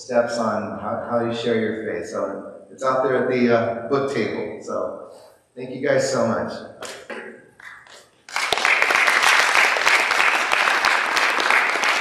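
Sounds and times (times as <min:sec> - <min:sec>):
audience clapping: 0:06.8 - 0:12.0.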